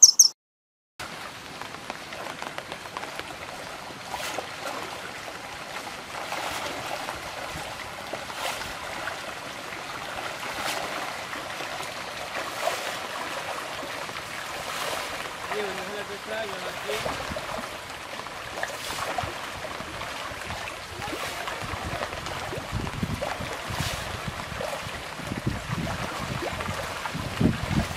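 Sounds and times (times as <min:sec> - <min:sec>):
fish splashing in water: 0:01.1 - 0:27.9.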